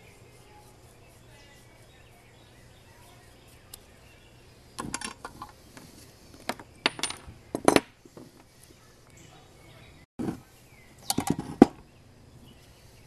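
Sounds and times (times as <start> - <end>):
metallic clinks and clatters: 6.5 - 7.9.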